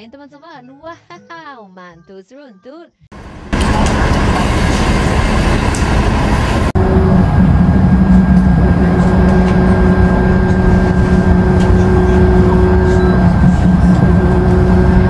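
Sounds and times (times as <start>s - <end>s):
bus engine running: 3.1s - 15.0s
bus interior engine hum: 3.1s - 15.0s.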